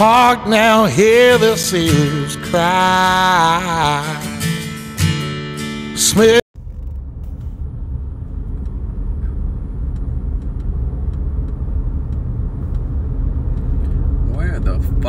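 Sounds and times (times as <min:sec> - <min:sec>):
song with guitar: 0:00.0 - 0:06.4
car road and engine rumble: 0:06.6 - 0:15.0.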